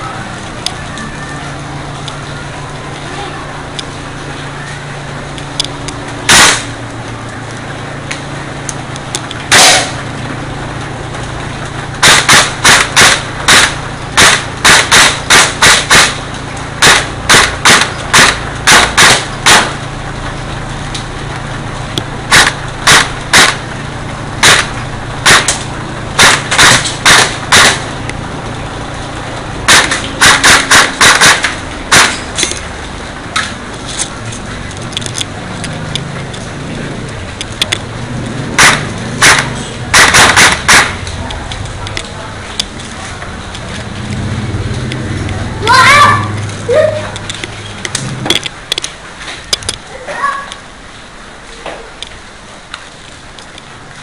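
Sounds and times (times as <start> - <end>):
airsoft gun firing: 6.3 - 6.7, 9.5 - 10.0, 12.0 - 16.2, 16.8 - 19.8, 22.3 - 23.6, 24.4 - 25.6, 26.2 - 27.9, 29.7 - 32.2, 38.6 - 41.0.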